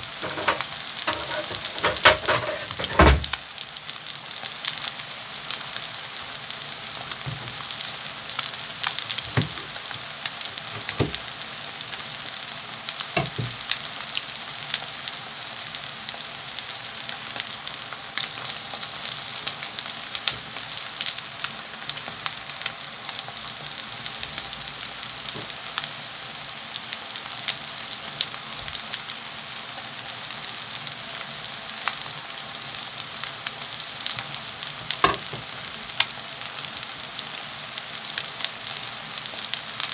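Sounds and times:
batter sizzling in oil: 0:00.0 - 0:39.9.

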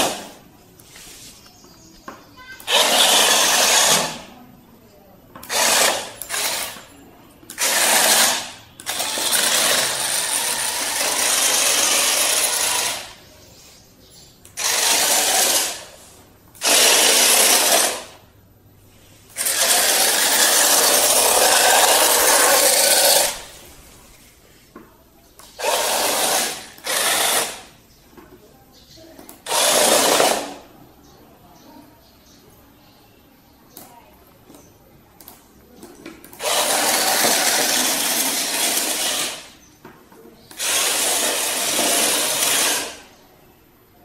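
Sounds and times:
wheels rolling on stone floor: 0:00.0 - 0:18.3, 0:18.9 - 0:31.1, 0:34.2 - 0:43.3
robot car motors whirring: 0:02.4 - 0:04.4, 0:05.4 - 0:06.9, 0:07.5 - 0:13.2, 0:14.5 - 0:18.2, 0:19.2 - 0:23.9, 0:25.4 - 0:27.8, 0:29.3 - 0:30.7, 0:36.2 - 0:39.6, 0:40.5 - 0:43.1.

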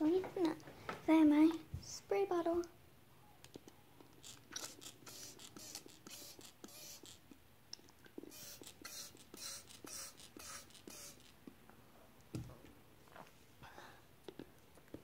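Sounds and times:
spray bottle spritzing: 0:04.2 - 0:07.3, 0:08.2 - 0:11.4.

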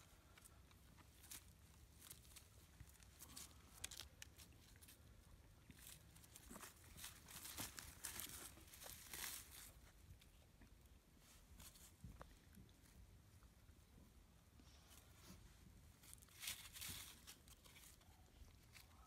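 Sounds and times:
dry leaves rustling and crackling: 0:00.0 - 0:05.0, 0:05.7 - 0:09.9, 0:16.0 - 0:19.0.

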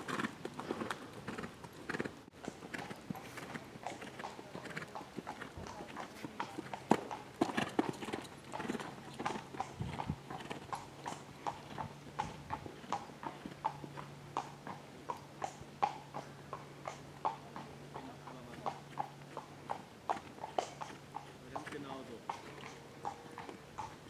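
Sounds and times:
hoofbeats on sand: 0:00.0 - 0:10.6.

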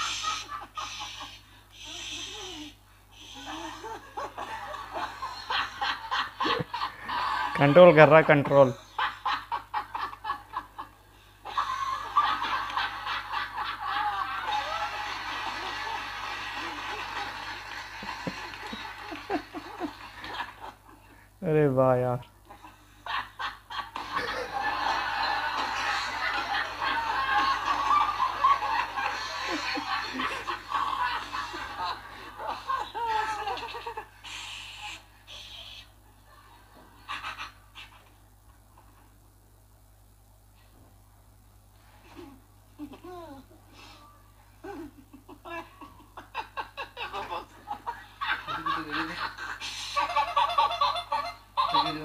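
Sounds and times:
people laughing: 0:03.4 - 0:08.2, 0:11.5 - 0:21.2, 0:22.4 - 0:34.2, 0:44.6 - 0:52.0.

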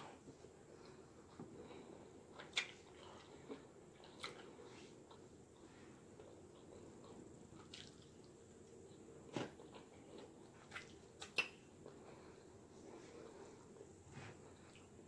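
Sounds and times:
person chewing salad: 0:00.4 - 0:15.0
mouth clicks and smacks: 0:10.7 - 0:11.7.

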